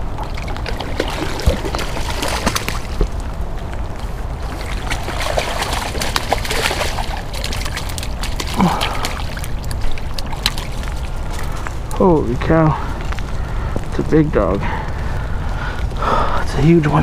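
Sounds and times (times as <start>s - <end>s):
steady low rumble: 0.0s - 17.0s
fish splashing at surface: 0.2s - 3.2s, 4.4s - 11.6s.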